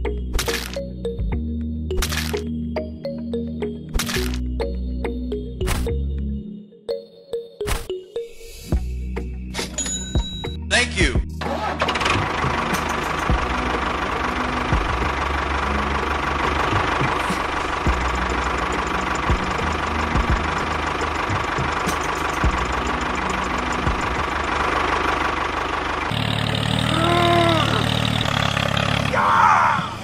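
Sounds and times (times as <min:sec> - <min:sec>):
tractor engine knocking: 0:11.5 - 0:27.0, 0:27.7 - 0:29.1.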